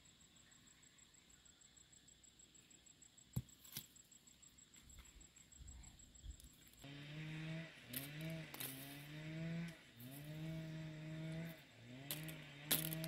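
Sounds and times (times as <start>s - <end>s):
small motor droning: 6.8s - 13.0s.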